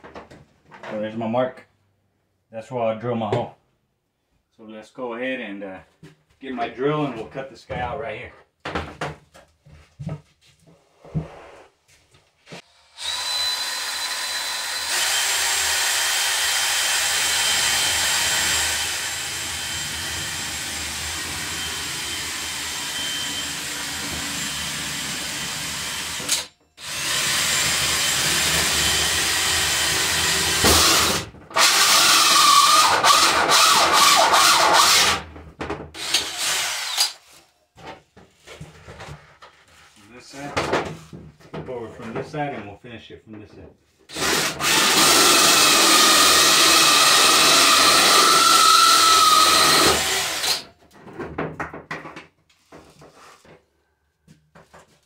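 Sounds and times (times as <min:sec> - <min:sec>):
drill with hole saw cutting: 0:12.6 - 0:35.2, 0:36.0 - 0:37.2, 0:44.1 - 0:50.7.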